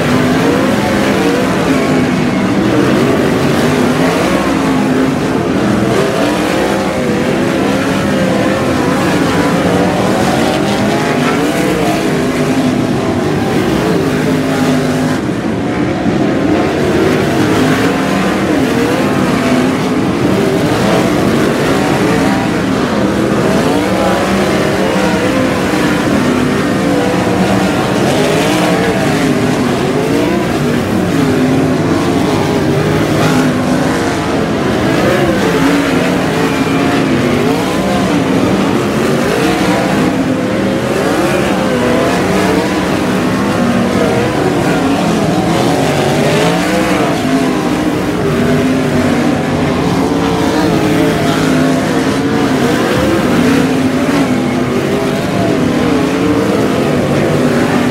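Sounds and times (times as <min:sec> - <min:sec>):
race car engines: 0:00.0 - 0:57.9.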